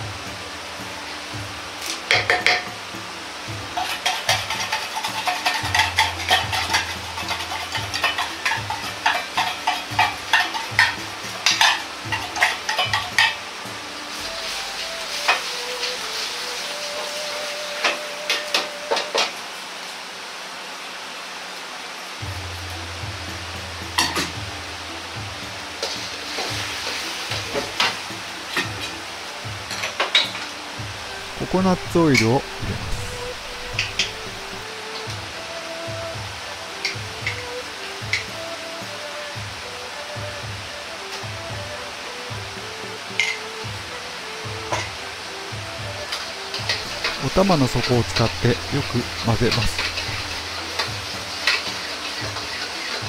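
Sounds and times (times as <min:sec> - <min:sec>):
light sizzle: 0:00.0 - 0:53.0
metal ladle scraping wok: 0:00.4 - 0:19.3, 0:29.8 - 0:35.0, 0:46.2 - 0:53.0
metal ladle clinking against wok: 0:03.8 - 0:13.4.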